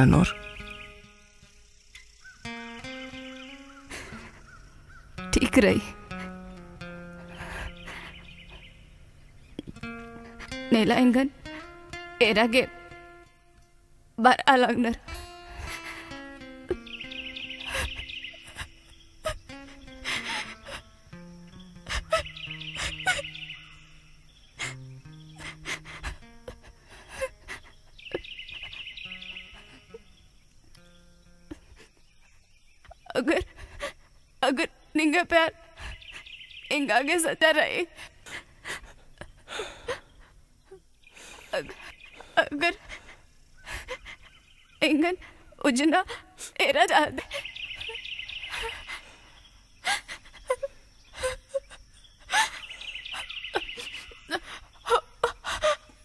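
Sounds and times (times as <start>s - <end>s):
soft film music with held notes: 0.0s - 14.0s, 14.6s - 32.2s
birds chirping: 0.0s - 56.0s.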